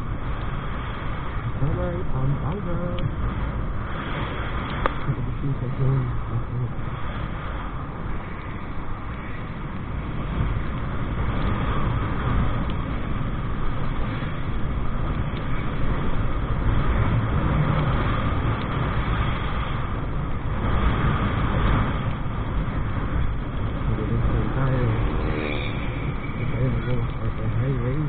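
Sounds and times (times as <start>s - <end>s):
road noise: 0.0s - 28.0s
wind rush: 0.0s - 28.0s.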